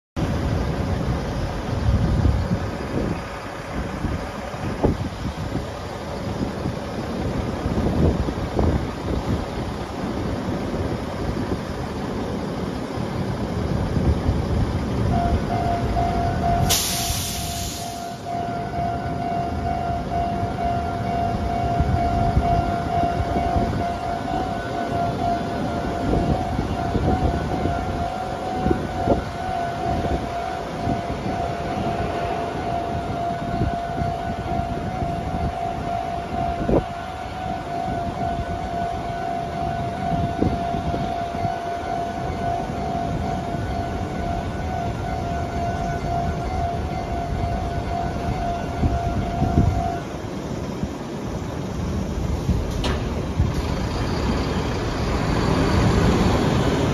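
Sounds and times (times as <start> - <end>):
road traffic rumbling: 0.2 - 56.9
level crossing warning bell: 14.5 - 16.8, 18.0 - 52.1
short loud hiss: 16.7 - 18.2.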